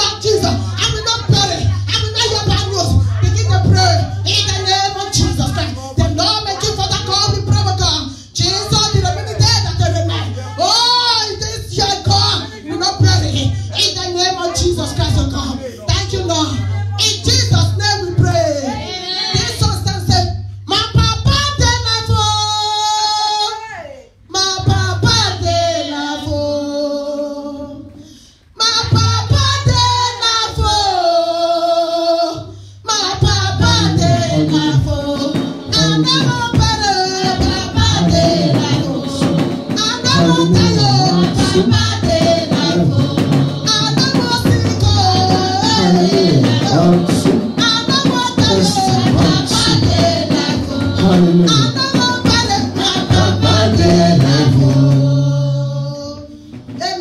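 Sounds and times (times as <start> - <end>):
woman singing into microphone: 0.0 - 57.0
instrumental accompaniment: 33.3 - 55.6.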